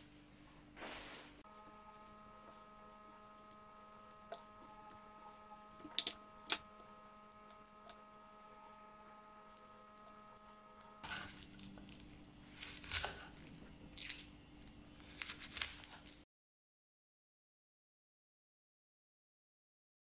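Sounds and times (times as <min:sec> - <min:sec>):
faint hum of fixed tones: 0:00.0 - 0:15.2.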